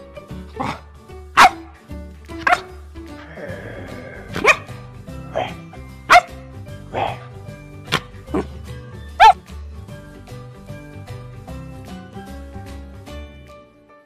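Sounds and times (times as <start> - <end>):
background music: 0.0 - 14.0
puppy barking: 1.4 - 1.7, 2.4 - 2.7, 4.3 - 7.3, 9.2 - 9.4.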